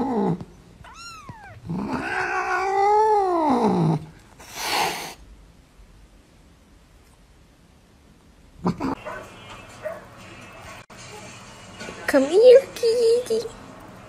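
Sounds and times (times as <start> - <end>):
kitten mewing: 0.0 - 5.2
cat yowling: 0.8 - 4.0
cat hissing: 0.9 - 5.3.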